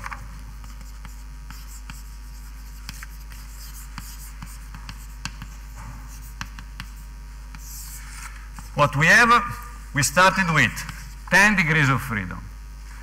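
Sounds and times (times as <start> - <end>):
pen tapping and scratching: 0.0 - 7.9.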